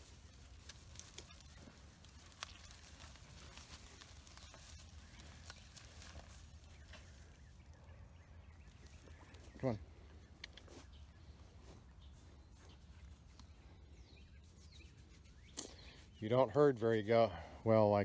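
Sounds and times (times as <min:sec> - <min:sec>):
cattle cropping grass: 0:00.0 - 0:07.5
hooves shifting in grass: 0:00.0 - 0:17.6.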